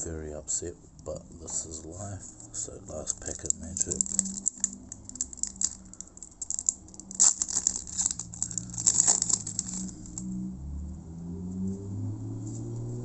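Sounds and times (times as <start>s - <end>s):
foil wrapper crinkling: 2.4s - 10.3s.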